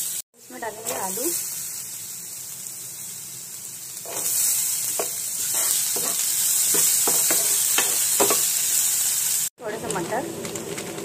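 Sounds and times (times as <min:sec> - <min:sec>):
vegetables sizzling in a pan: 0:00.0 - 0:11.0
metal spoon scraping a pan: 0:04.0 - 0:08.5.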